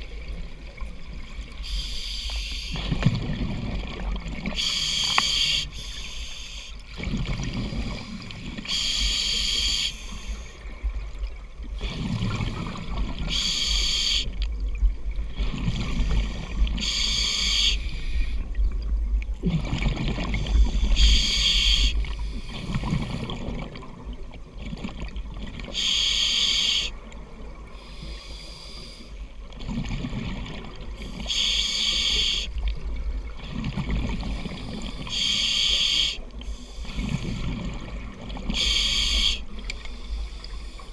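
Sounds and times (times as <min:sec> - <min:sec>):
regulator hissing inhale: 0:01.6 - 0:02.9, 0:04.6 - 0:06.9, 0:07.9 - 0:10.6, 0:13.3 - 0:14.4, 0:16.3 - 0:18.5, 0:20.4 - 0:22.8, 0:25.8 - 0:27.0, 0:27.8 - 0:29.3, 0:31.0 - 0:32.6, 0:34.4 - 0:37.5, 0:38.5 - 0:40.9.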